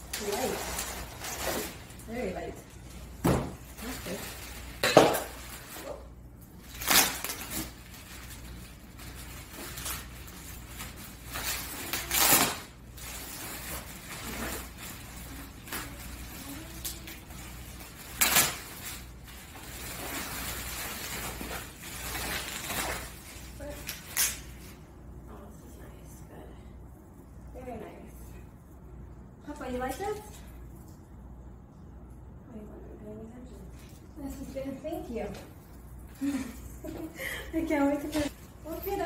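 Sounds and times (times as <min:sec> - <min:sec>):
bubble wrap rustling and crackling: 0:00.0 - 0:24.8.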